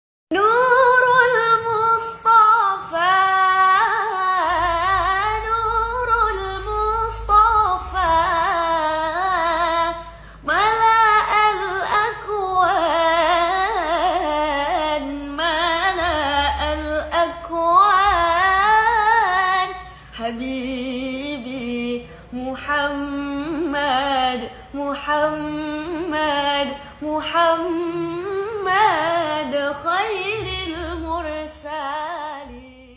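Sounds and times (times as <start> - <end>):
woman singing devotional song: 0.3 - 32.9.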